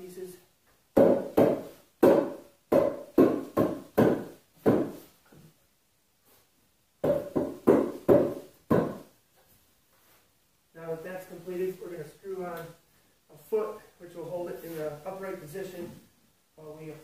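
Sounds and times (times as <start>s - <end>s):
hollow wooden knocks: 1.0s - 5.5s, 7.0s - 9.1s.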